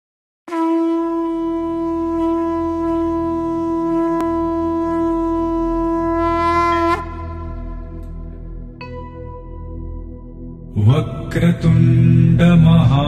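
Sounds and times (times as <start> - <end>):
conch shell blown: 0.5 - 10.2
low drone: 1.3 - 13.0.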